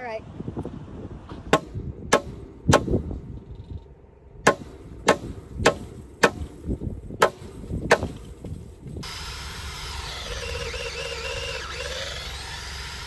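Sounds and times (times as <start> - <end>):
hammer striking wooden post: 1.4 - 3.0, 4.4 - 6.6, 7.2 - 8.6.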